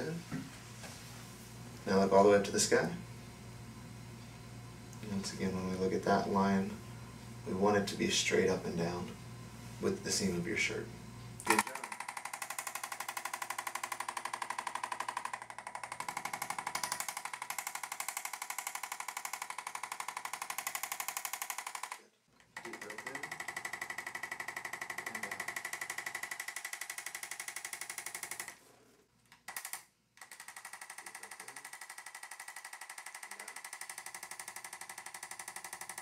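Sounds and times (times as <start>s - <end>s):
electric percussive massager tapping: 11.4s - 22.0s, 22.6s - 28.6s, 29.4s - 36.0s.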